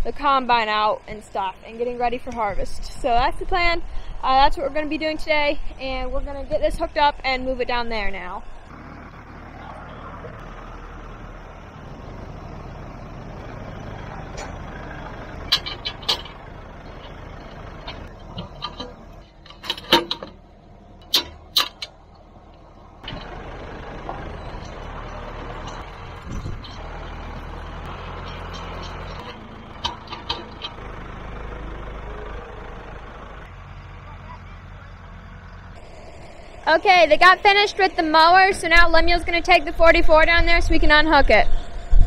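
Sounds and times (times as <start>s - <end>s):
tractor engine idling: 0.0s - 42.0s
metal clanks and knocks: 13.3s - 32.6s.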